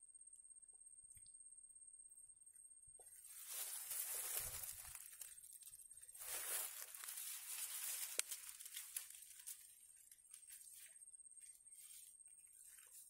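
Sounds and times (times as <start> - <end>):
dry grass rustling and crackling: 3.0 - 13.0.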